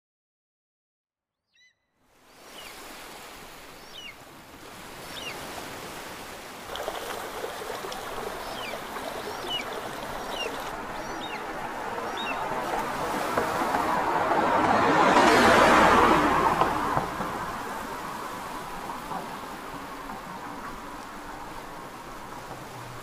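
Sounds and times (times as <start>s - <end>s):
bird chirping: 1.5s - 2.8s, 3.8s - 4.2s, 5.1s - 5.4s, 8.0s - 12.5s
rushing water: 2.1s - 23.0s.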